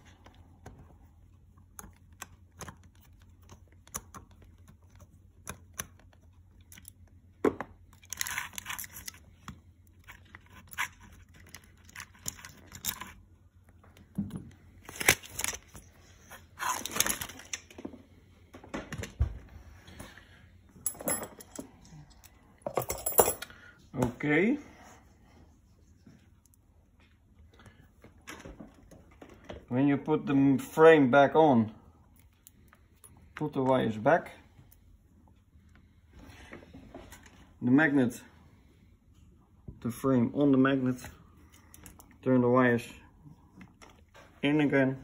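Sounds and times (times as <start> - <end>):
wires rustling and scraping: 7.9 - 14.1.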